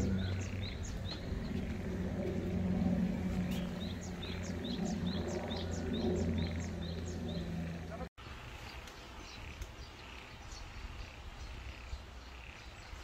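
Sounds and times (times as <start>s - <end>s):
low steady hum: 0.0s - 8.1s.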